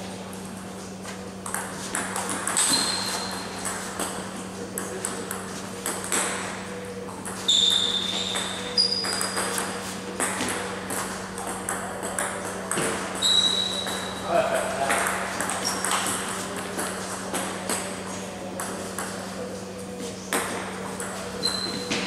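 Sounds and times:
steady low hum: 0.0 - 22.0
short high squeaks: 2.6 - 3.6, 7.5 - 9.4, 13.2 - 14.2, 21.4 - 21.9.

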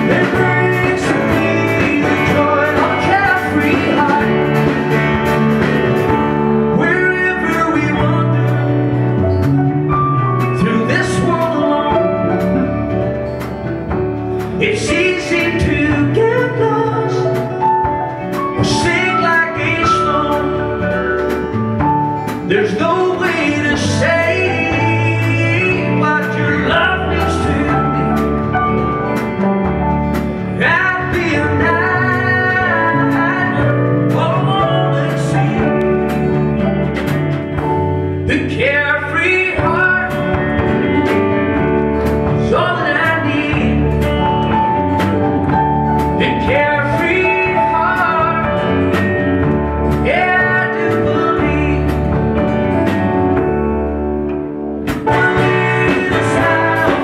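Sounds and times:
man singing into a microphone: 0.0 - 5.0, 6.6 - 9.2, 10.4 - 13.0, 14.5 - 21.4, 22.2 - 28.7, 30.5 - 36.4, 38.2 - 41.1, 42.3 - 44.6, 46.0 - 52.9, 55.0 - 57.0
acoustic guitar strumming: 0.0 - 57.0.

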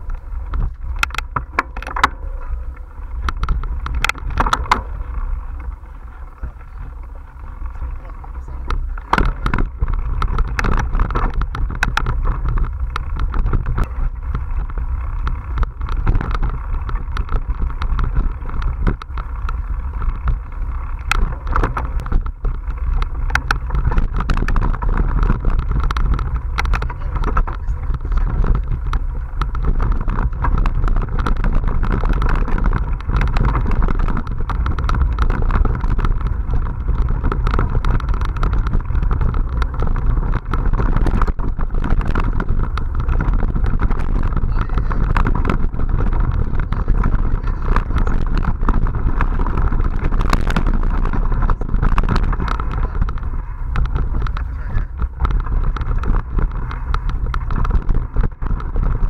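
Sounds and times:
bike and mount rattling: 0.0 - 59.0
tyre noise on dirt: 0.0 - 59.0
wind buffeting microphone: 0.0 - 59.0.

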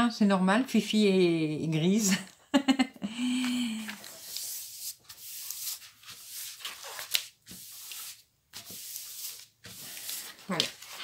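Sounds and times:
paper sheet rustling: 3.8 - 11.0.

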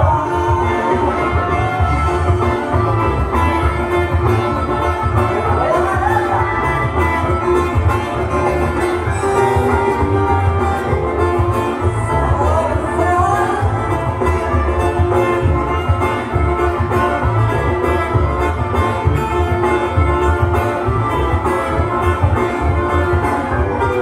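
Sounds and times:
band playing dance music: 0.0 - 24.0.

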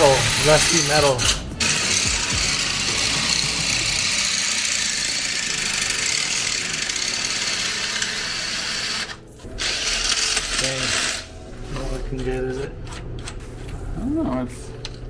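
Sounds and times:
power drill boring into brick: 0.0 - 11.3.

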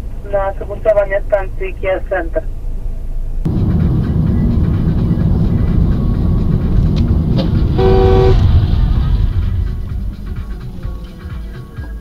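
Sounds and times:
car engine and road noise: 0.0 - 12.0
two-tone car horn: 7.4 - 8.8.

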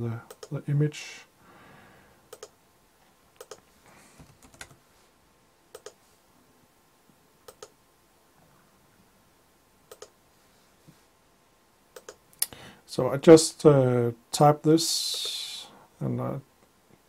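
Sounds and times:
computer mouse clicks: 0.3 - 0.6, 2.3 - 2.6, 3.4 - 3.6, 5.7 - 6.0, 7.4 - 7.8, 9.9 - 10.2, 11.9 - 12.5.

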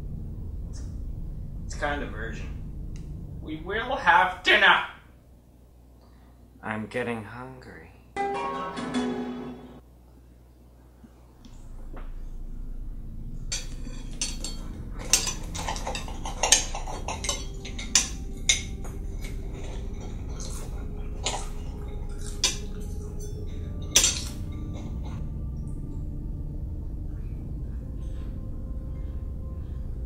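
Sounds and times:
low steady hum: 0.0 - 30.0
cutlery clinking on plate: 13.6 - 25.2.

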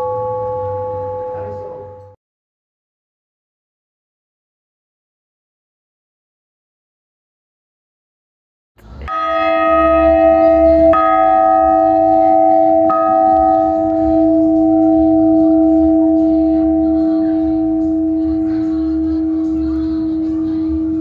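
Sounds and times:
church bell ringing: 0.0 - 2.2, 9.1 - 21.0.

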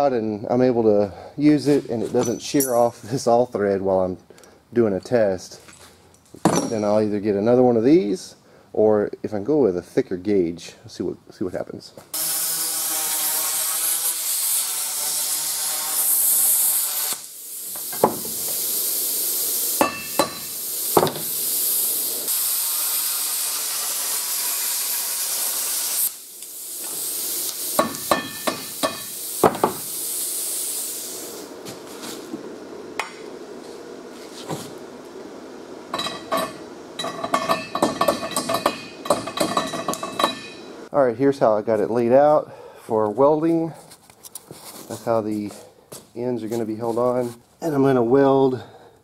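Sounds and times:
plasma cutter hissing: 12.2 - 31.6
sharp metal knocks: 36.0 - 40.6.

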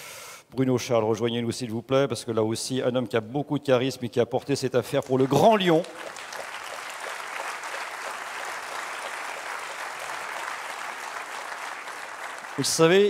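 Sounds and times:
audience applauding: 5.0 - 13.0.

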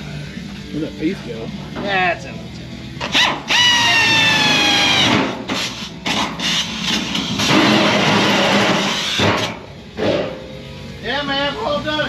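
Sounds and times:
rough grinding and hiss: 2.7 - 11.0
pneumatic air drill cutting steel: 3.0 - 10.4.

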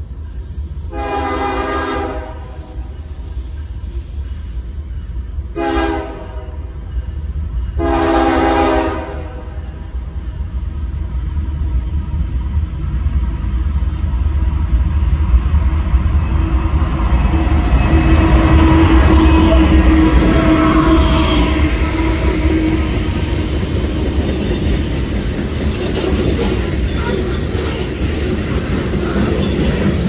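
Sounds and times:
train engines and wheels rumbling: 0.0 - 30.0
train horn blasts: 0.9 - 2.9, 5.6 - 6.7, 7.8 - 9.9, 18.0 - 23.1.

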